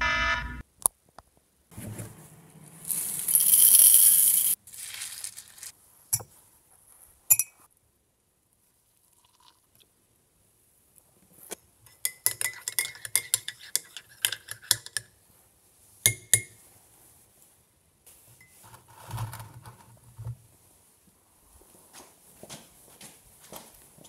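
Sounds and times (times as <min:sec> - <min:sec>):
teaspoon clinking in ceramic mug: 0:11.9 - 0:15.1, 0:16.1 - 0:16.6.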